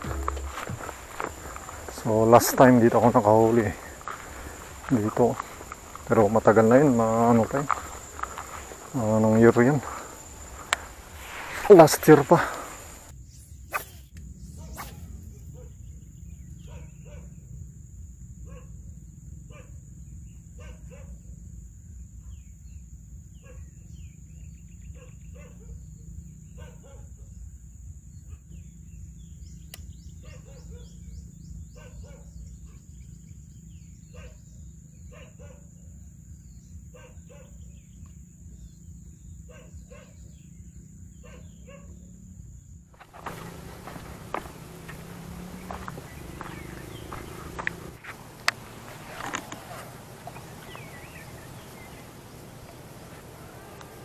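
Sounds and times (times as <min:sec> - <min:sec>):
high steady tone: 0:00.0 - 0:01.6
animal calls or clicks: 0:43.0 - 0:54.0.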